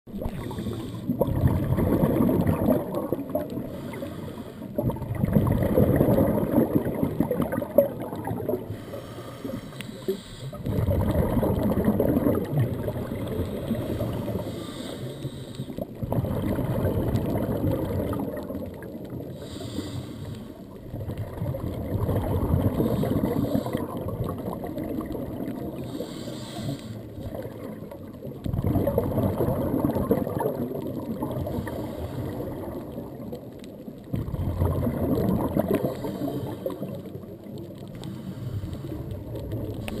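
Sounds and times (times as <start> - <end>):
bubbling exhaled air: 0.1 - 40.0
regulator inhalation hiss: 0.4 - 1.1, 3.7 - 4.7, 8.7 - 10.6, 13.5 - 15.8, 19.4 - 20.6, 25.8 - 27.1.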